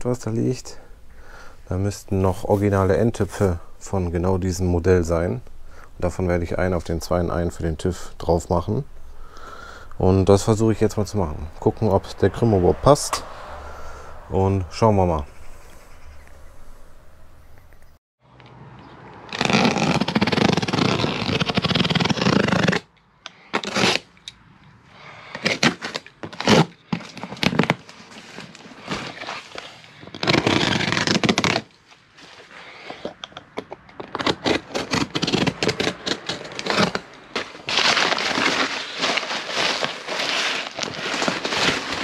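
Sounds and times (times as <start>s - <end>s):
knife slicing tape and cardboard: 19.3s - 24.2s, 25.2s - 33.1s, 34.0s - 42.0s
packing paper rustling: 25.4s - 33.1s, 34.0s - 42.0s.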